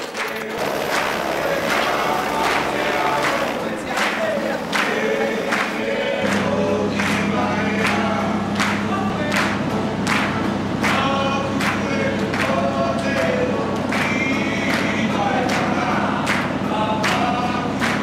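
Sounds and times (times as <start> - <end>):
group of voices singing: 0.0 - 10.0, 10.8 - 18.0
low steady note: 0.6 - 7.0.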